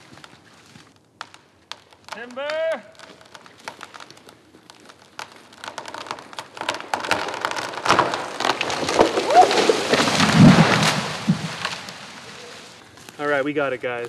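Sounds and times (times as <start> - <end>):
tree trunk cracking and snapping: 0.0 - 13.4
tree landing with heavy thump: 3.4 - 12.8.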